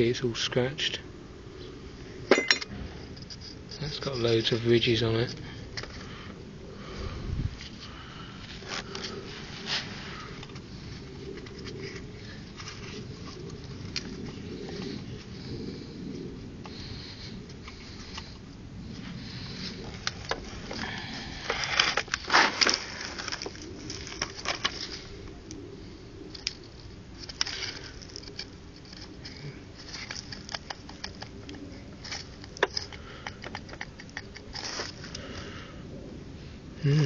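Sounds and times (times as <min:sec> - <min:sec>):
metal parts clinking and scraping: 0:02.3 - 0:04.6, 0:27.2 - 0:35.0.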